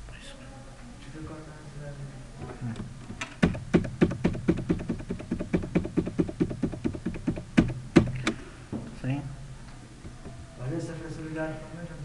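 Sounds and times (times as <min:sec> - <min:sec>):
keyboard typing: 0:03.1 - 0:08.4.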